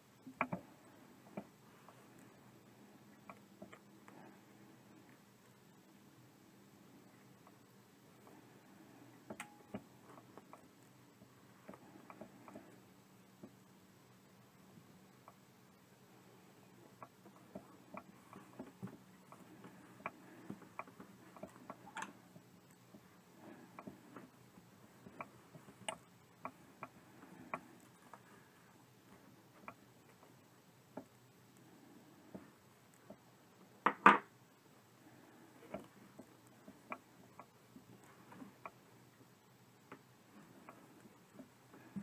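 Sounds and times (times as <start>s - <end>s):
low steady hum: 0.0s - 42.0s
hand sewing clicks and rustles: 8.2s - 13.5s, 16.9s - 34.4s.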